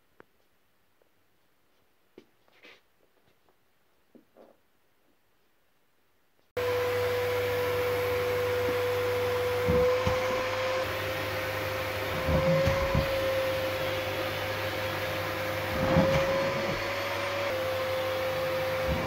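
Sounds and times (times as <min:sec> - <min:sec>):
vacuum cleaner whining: 0:06.6 - 0:19.0.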